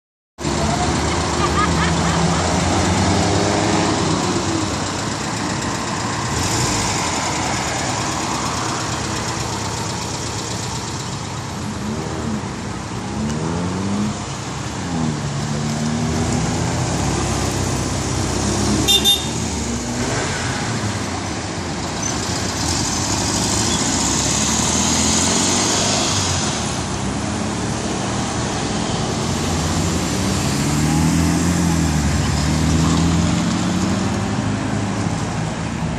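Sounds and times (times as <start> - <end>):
car engines pulling away: 0.4 - 35.9
tyre and traffic noise: 0.4 - 35.9
car horn toot: 18.8 - 19.4.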